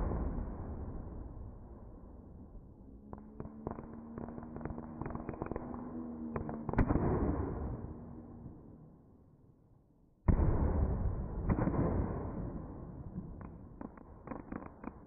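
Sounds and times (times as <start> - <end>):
firework crackles: 13.4 - 15.0.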